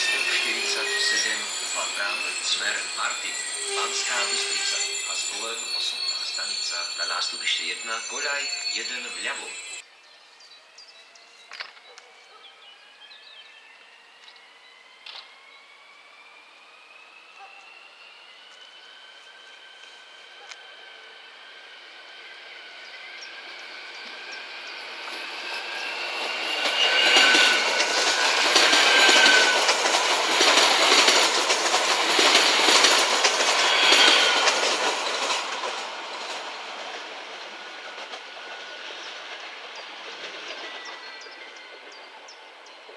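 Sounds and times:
high wheel squeals: 0:00.0 - 0:09.8, 0:13.8 - 0:42.6
train wheels clattering over joints: 0:25.0 - 0:42.9.

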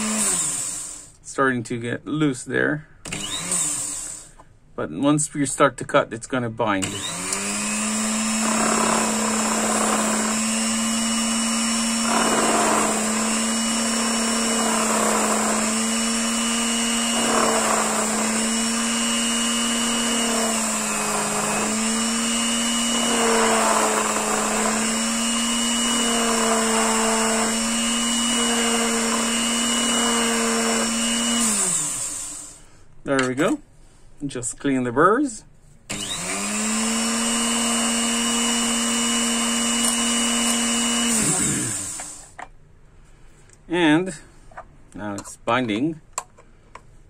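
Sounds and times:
lathe motor whine: 0:00.0 - 0:01.0, 0:03.1 - 0:04.2, 0:06.8 - 0:32.6, 0:35.9 - 0:42.3
tool rasping on metal: 0:06.9 - 0:31.8.

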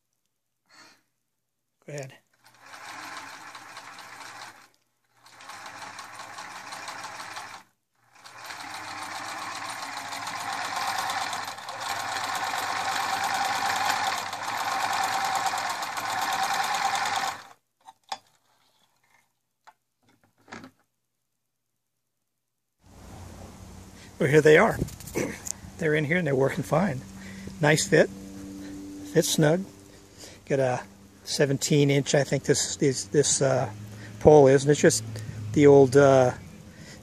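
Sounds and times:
sewing machine stitching: 0:02.3 - 0:17.6.

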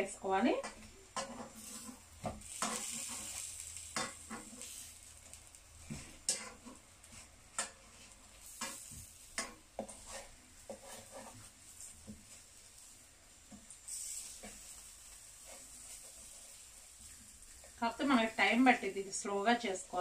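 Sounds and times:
eggplant sizzling in frying pan: 0:00.0 - 0:20.0
fork and spatula tapping pan: 0:03.9 - 0:04.4, 0:08.6 - 0:11.0.

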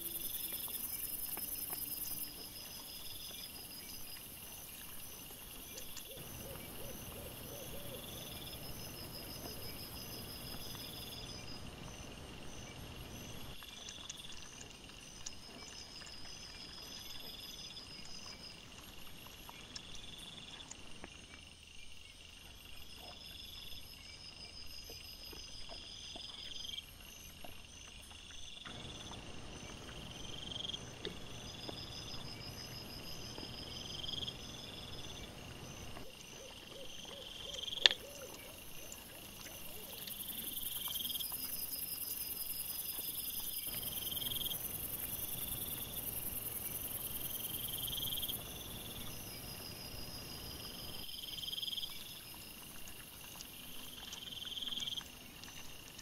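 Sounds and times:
crickets chirping: 0:00.0 - 0:56.0
high-pitched insect trilling: 0:39.4 - 0:52.2.

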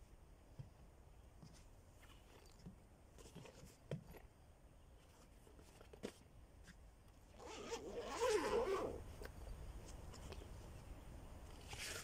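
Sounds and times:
zipper being pulled open: 0:07.4 - 0:09.1.

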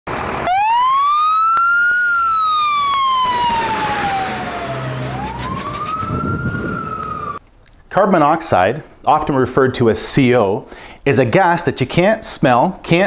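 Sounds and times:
fire truck siren wailing: 0:00.1 - 0:07.4.

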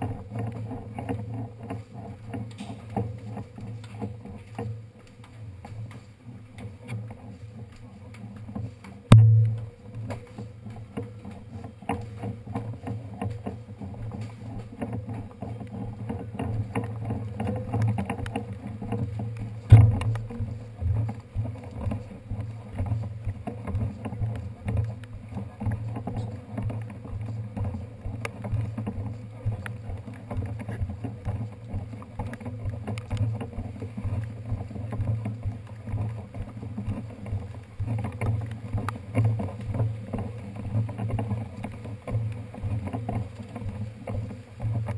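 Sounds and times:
bicycle rumbling and rattling: 0:00.0 - 0:44.9.

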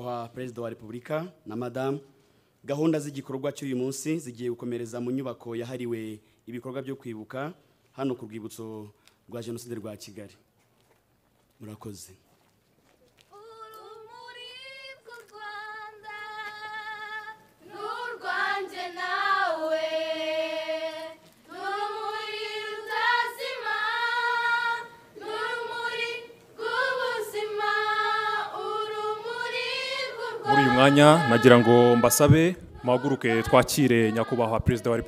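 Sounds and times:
women singing unaccompanied: 0:13.3 - 0:35.0.

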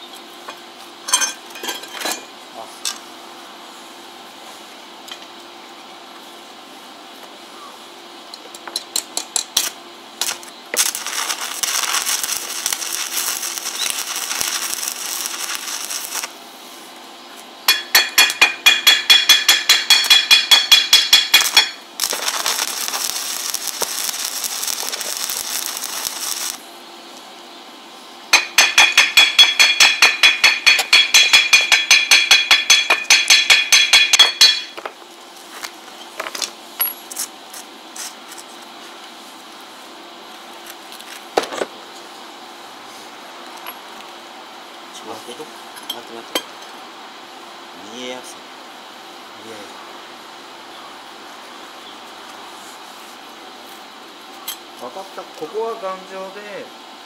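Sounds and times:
welding arc hissing and crackling: 0:09.4 - 0:26.7, 0:28.3 - 0:41.4, 0:54.7 - 0:56.8.

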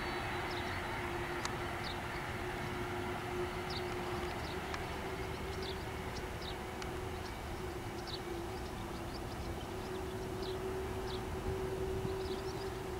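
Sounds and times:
jet engines idling: 0:00.0 - 0:12.9
small birds chirping: 0:03.7 - 0:11.3.

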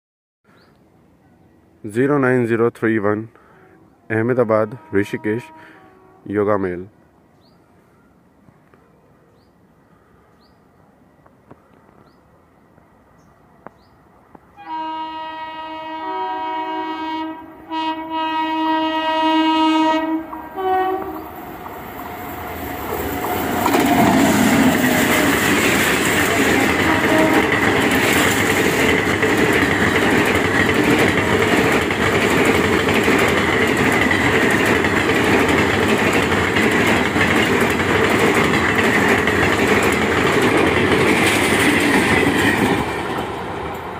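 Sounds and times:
train horn blast: 0:03.4 - 0:06.4, 0:14.5 - 0:21.3, 0:26.3 - 0:28.1
train passing with loud rush: 0:09.4 - 0:43.9.

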